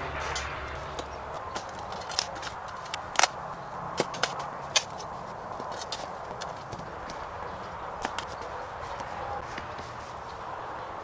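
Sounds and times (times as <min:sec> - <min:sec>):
shovel scraping soil: 0:00.0 - 0:03.4, 0:04.0 - 0:07.3
shovel striking rocks: 0:04.0 - 0:05.1.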